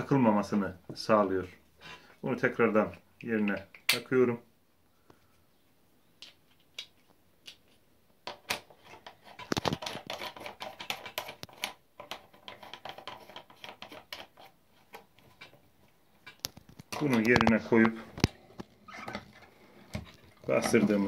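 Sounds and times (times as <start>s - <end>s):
metal clicks and scrapes: 8.3s - 15.6s.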